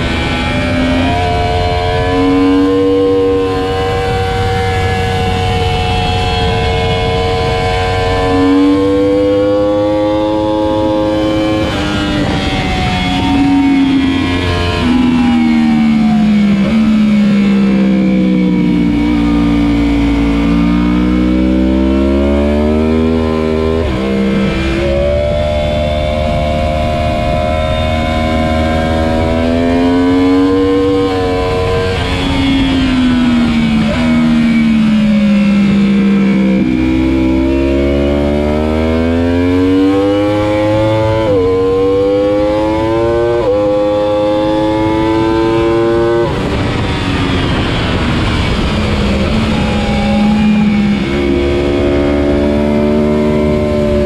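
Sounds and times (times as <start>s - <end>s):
motorcycle engine revving: 0.0s - 54.0s
wind rush: 10.2s - 17.8s, 43.7s - 54.0s.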